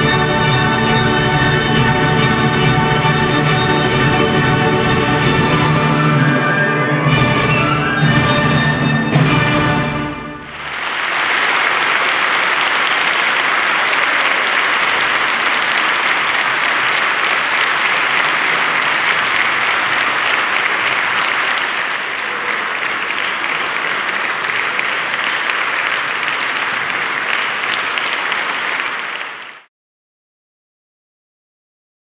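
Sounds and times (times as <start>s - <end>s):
large audience applauding: 10.4s - 29.7s.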